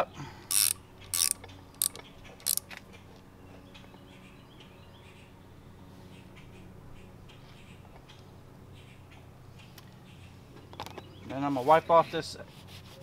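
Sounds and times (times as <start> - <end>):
hand ratchet clicking: 0.5 - 2.6.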